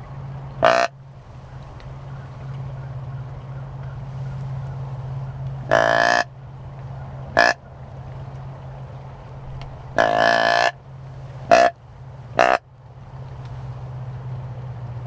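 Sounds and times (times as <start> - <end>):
steady low hum: 0.0 - 15.0
deer grunt call: 0.6 - 1.0, 5.7 - 6.3, 7.3 - 7.7, 10.0 - 10.8, 11.5 - 11.8, 12.4 - 12.6.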